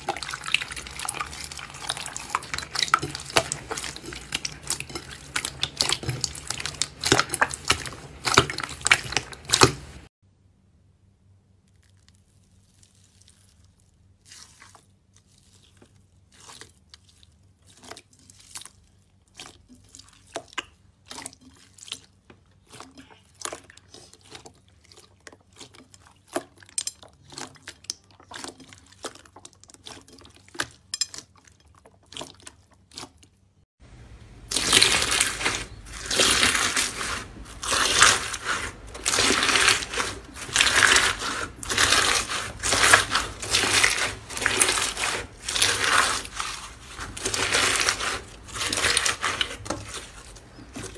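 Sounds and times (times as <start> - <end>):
slime crackling and popping: 0.0 - 10.1, 34.4 - 50.9
slime crunching: 0.0 - 10.1, 11.6 - 33.4, 34.2 - 50.9.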